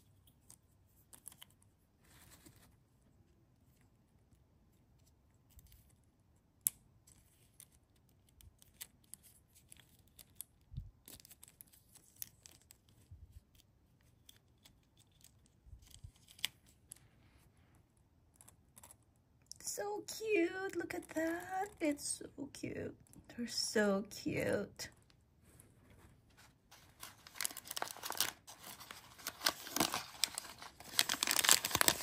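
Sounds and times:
tiny parts clicking and scratching: 0.0 - 1.7, 4.3 - 17.0, 17.8 - 19.6.

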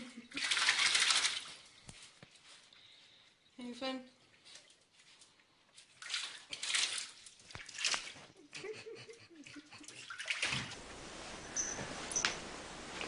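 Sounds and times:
water splashing in bathtub: 0.0 - 2.1, 4.3 - 13.0
steady hiss: 10.8 - 13.0.

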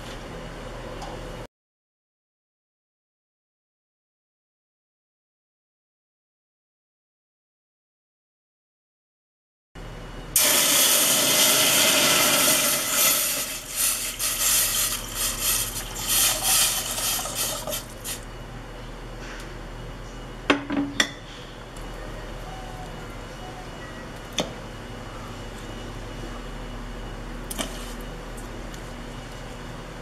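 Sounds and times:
water pouring into metal pot: 10.4 - 18.2.

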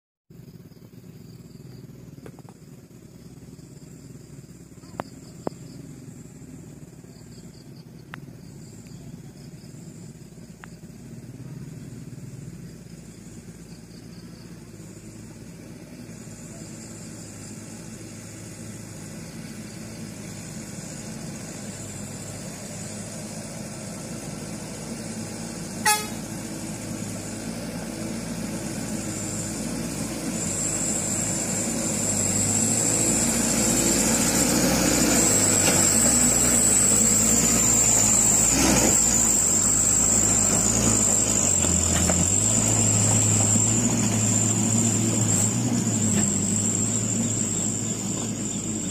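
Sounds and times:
diesel truck engine pulling uphill: 0.3 - 48.9
short horn toot: 25.8 - 26.3.

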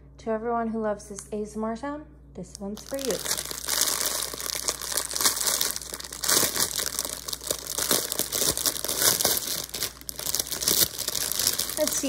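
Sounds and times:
plastic wrap crinkling: 2.5 - 12.0.

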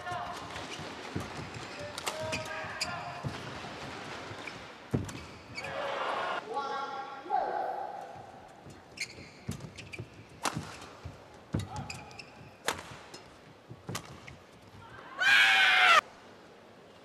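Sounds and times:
racket hitting shuttlecock: 0.3 - 5.3, 9.4 - 14.4
shoe squeaks on court: 4.3 - 5.7, 8.9 - 10.9, 11.5 - 12.6.

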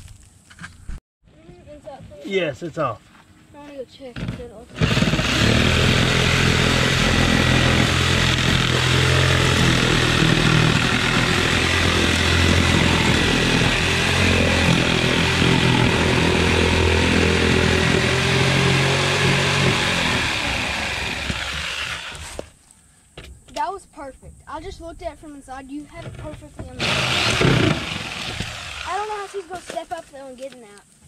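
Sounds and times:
electric jigsaw cutting wood: 4.2 - 22.5, 26.8 - 29.7.

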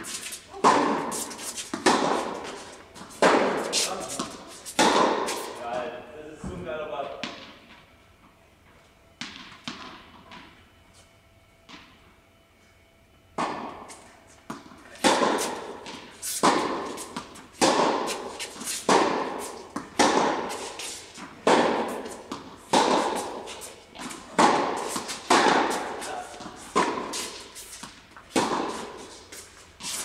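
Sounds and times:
tennis ball bouncing on court: 0.0 - 5.5, 9.2 - 10.5, 13.4 - 13.9, 14.5 - 30.0
tennis ball hit by rackets: 0.0 - 5.6, 9.2 - 10.5, 13.4 - 30.0.

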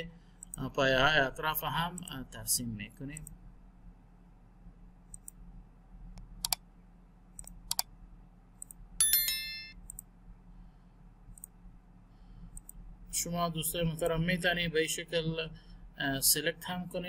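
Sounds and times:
faint steady hum: 0.0 - 17.0
sharp clicks: 7.4 - 7.9, 12.5 - 12.8
bright ringing ding: 9.0 - 9.8.

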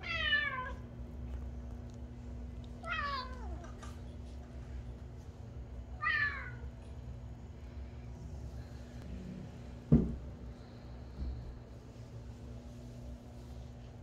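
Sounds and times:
faint steady hum: 0.0 - 14.0
cat meowing: 2.8 - 3.6, 6.0 - 6.6.

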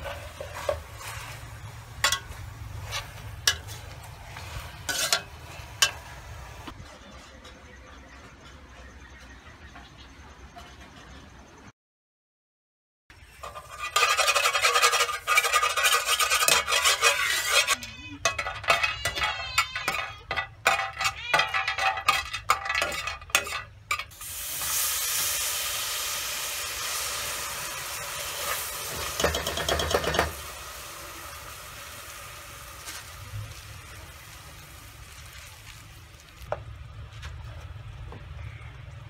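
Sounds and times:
metal ladle scraping a pot: 0.0 - 6.2, 13.4 - 24.8, 26.8 - 34.3
hot oil sizzling in a pot: 0.0 - 6.8, 13.4 - 20.1, 20.7 - 36.7.

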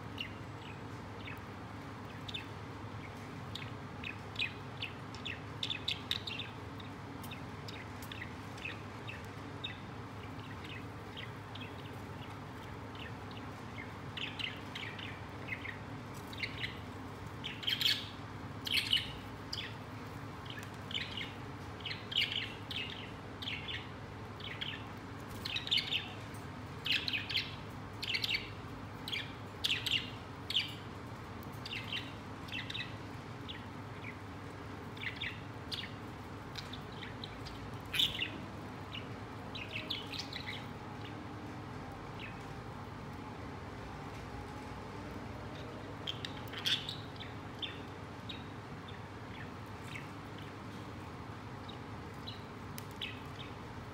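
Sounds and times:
budgerigars chirping: 17.4 - 19.8, 26.8 - 30.9, 35.0 - 40.7, 45.5 - 50.6.

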